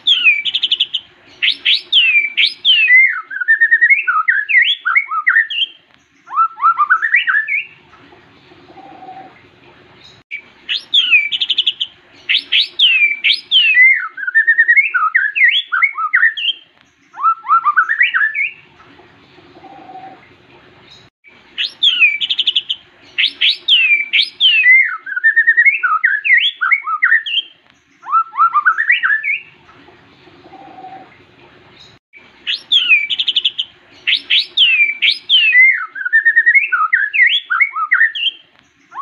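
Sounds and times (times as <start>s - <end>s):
bird singing whistled phrases: 0.0s - 7.8s, 10.3s - 18.6s, 21.6s - 29.6s, 32.5s - 39.0s.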